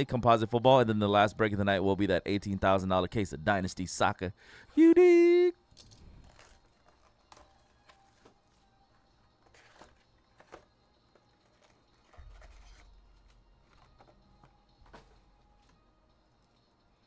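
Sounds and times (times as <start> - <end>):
cardboard boxes being handled: 9.4 - 15.3.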